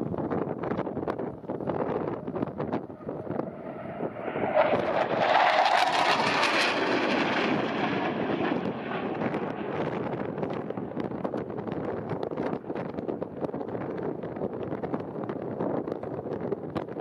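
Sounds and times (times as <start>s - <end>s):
wind buffeting microphone: 0.0s - 17.0s
jet engine roar: 1.3s - 14.2s.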